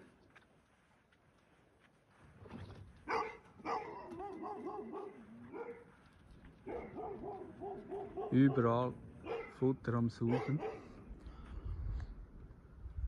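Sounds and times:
huskies whining and yipping: 3.0 - 5.9, 6.6 - 9.5.

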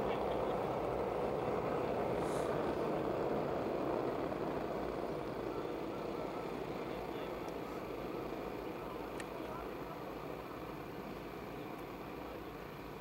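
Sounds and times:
racing kart engines droning: 0.0 - 13.0.

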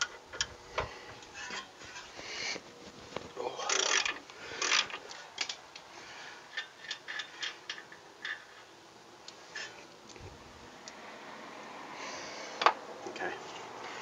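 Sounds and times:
ratchet wrench clicking: 3.7 - 5.6.

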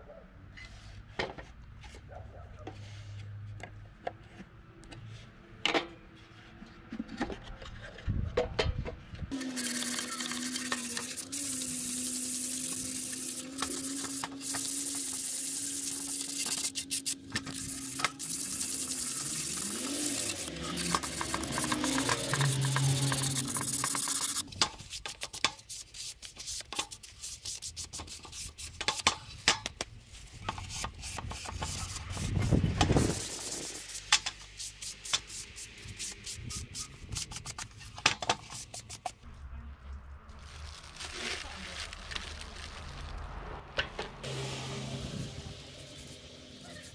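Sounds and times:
wood being sanded: 9.3 - 29.0.

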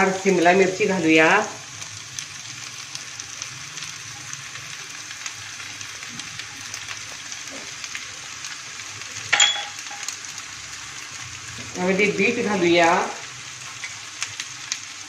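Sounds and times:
oil sizzling in a frying pan: 0.0 - 15.0
metallic clang: 9.3 - 10.1.

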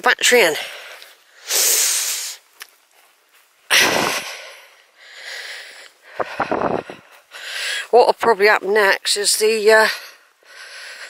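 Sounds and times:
person breathing hard: 0.6 - 2.5, 3.7 - 7.9, 10.0 - 11.0.

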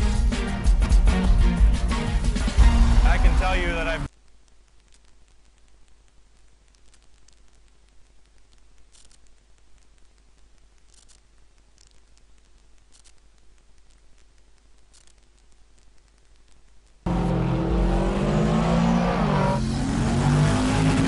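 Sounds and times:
low steady hum: 0.0 - 20.2
faint crackling hiss: 4.0 - 17.1.

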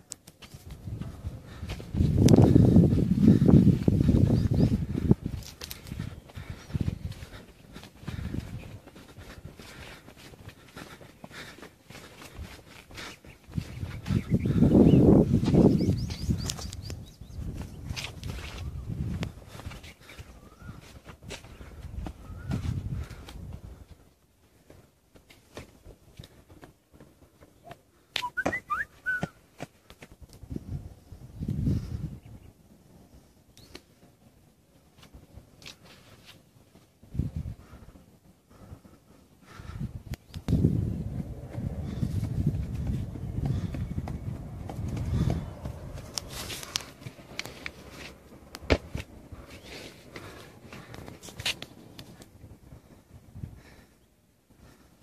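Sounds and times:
footsteps on dry dirt: 0.0 - 31.9, 34.4 - 53.0
high whistle-like chirps: 28.2 - 29.4.

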